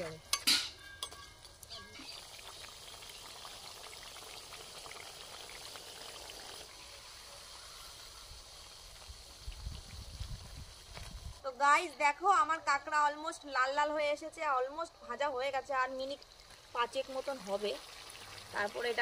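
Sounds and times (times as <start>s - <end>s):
crabs deep-frying in oil: 0.0s - 11.5s, 13.4s - 19.0s.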